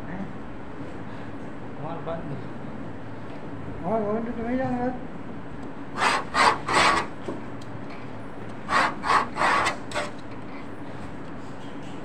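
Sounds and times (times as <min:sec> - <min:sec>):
hand tool rasping over paper: 0:06.0 - 0:07.3, 0:08.7 - 0:10.2.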